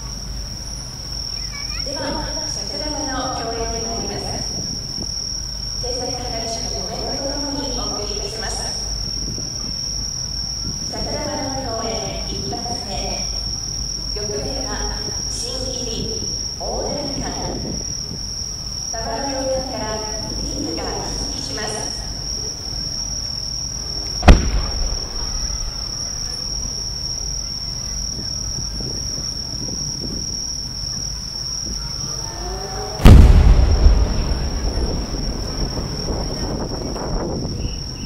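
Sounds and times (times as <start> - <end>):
insects trilling: 0.0 - 38.0
people talking quietly: 0.0 - 38.0
firework shell boom: 24.2 - 26.8, 33.0 - 36.6.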